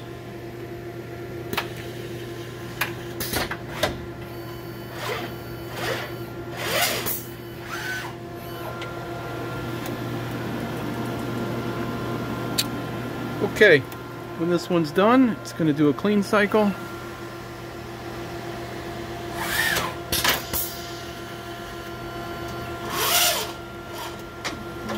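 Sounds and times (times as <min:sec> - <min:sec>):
steady machine hum: 0:00.0 - 0:24.9
brief mechanical whirs: 0:19.3 - 0:20.7.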